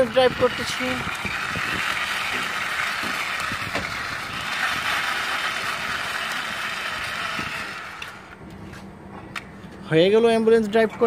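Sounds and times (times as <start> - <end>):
toy wheels rolling on concrete: 0.0 - 8.4.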